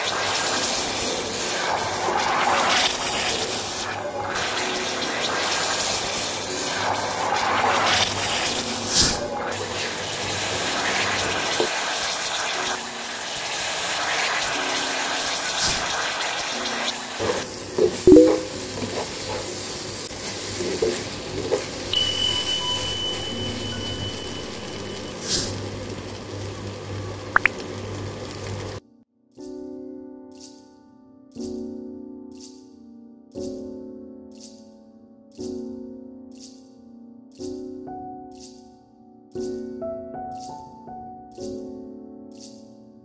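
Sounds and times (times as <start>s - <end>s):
food sizzling in hot oil: 0.0s - 28.8s.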